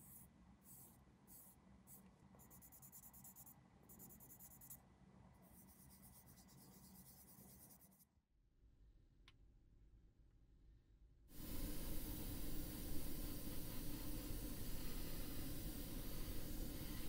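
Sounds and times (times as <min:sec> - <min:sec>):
faint scratching on plastic: 0:05.4 - 0:08.1.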